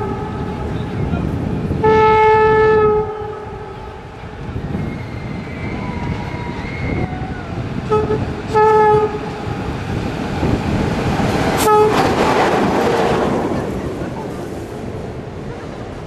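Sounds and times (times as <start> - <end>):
train running rumble: 0.0 - 16.0
locomotive horn blasts: 1.8 - 4.0, 7.8 - 9.4, 11.6 - 12.2.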